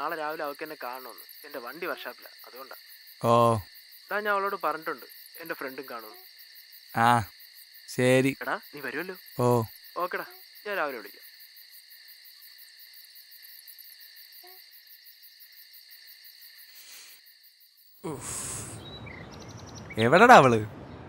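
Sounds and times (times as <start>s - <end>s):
crickets chirping: 0.0s - 21.0s
man talking: 3.2s - 3.6s, 7.0s - 7.3s, 7.9s - 9.7s, 18.1s - 18.8s, 20.0s - 20.7s.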